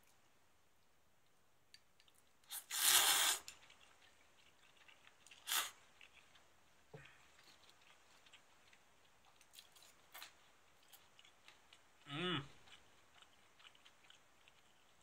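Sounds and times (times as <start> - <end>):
noodles slurped: 2.5 - 6.3.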